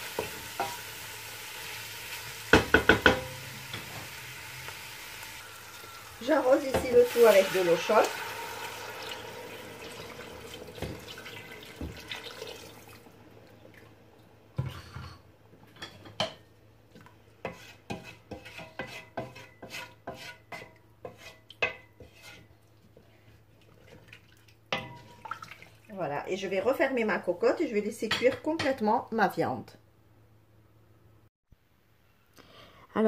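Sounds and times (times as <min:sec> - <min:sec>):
wooden spoon tapping metal pot: 0:02.5 - 0:03.4
water pouring into a metal pot: 0:03.4 - 0:14.0, 0:23.6 - 0:25.9.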